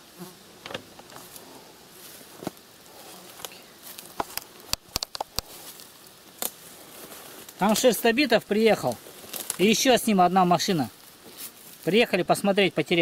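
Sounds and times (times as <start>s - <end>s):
green stalks rustling and crackling: 0.0s - 13.0s
sharp snaps of stalks: 3.4s - 6.7s, 9.2s - 9.7s.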